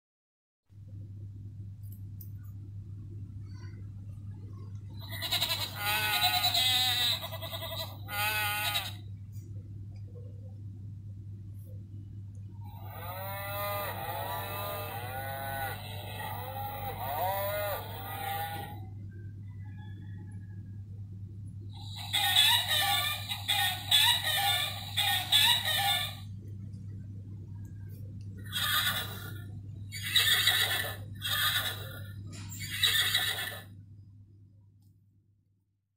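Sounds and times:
low electrical hum: 0.7 - 35.8
recorded sheep bleating from toy speaker: 5.0 - 9.0, 12.8 - 18.8
electronic horse whinny: 12.7 - 18.9.

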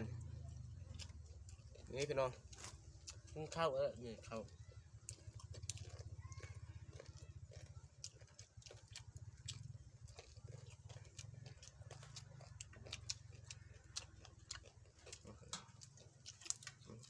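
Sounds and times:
low steady hum: 0.0 - 17.0
people chewing food: 0.0 - 17.0.

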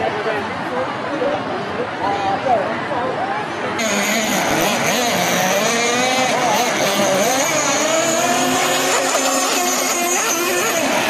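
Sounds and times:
model speedboat screaming engine: 3.8 - 11.0.

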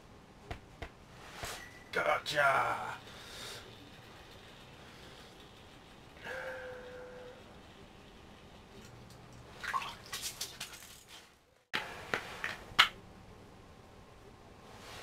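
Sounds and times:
water splashing and dripping: 9.5 - 10.9.

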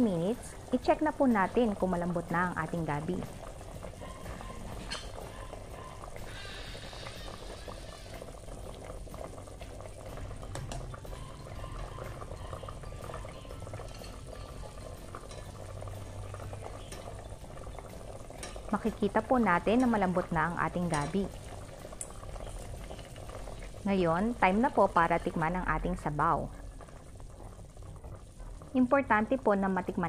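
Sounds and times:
soup boiling: 0.0 - 30.0
ladle clinking on a metal pot: 4.8 - 5.4, 13.8 - 15.6, 20.8 - 21.2.

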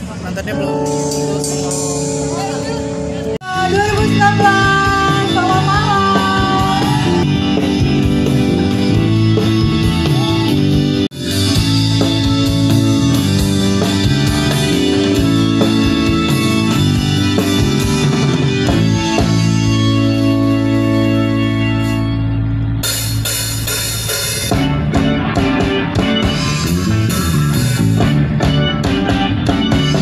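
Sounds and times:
live rock band playing: 0.0 - 30.0
person singing: 3.4 - 7.3.

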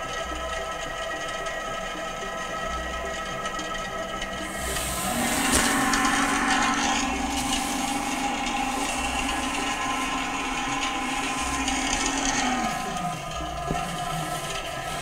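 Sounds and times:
steady whirring noise: 0.0 - 15.0
low hum: 2.0 - 15.0.

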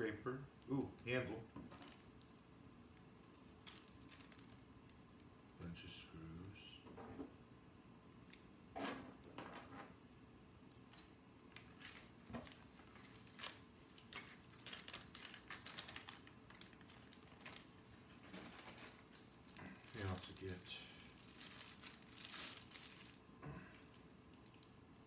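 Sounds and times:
plastic bag crinkling: 1.0 - 5.3, 11.6 - 24.8
metal screws clinking in bag: 13.9 - 16.8.

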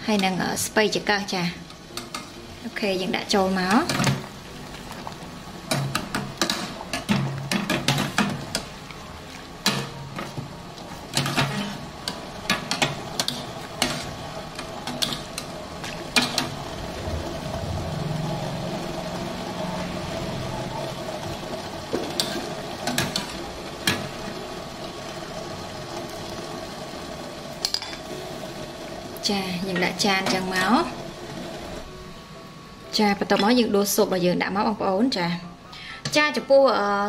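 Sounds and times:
water bubbling: 15.8 - 21.9.

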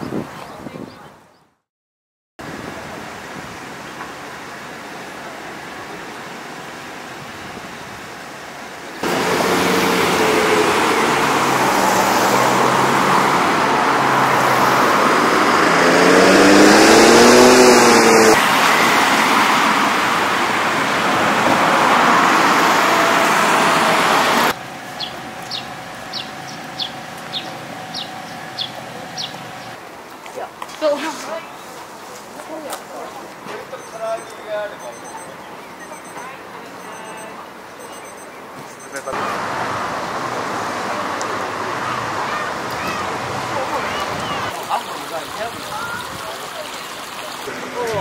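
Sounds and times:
cars passing: 8.9 - 48.0
car engine rising and falling: 9.0 - 29.8
short high chirps: 33.8 - 39.1.

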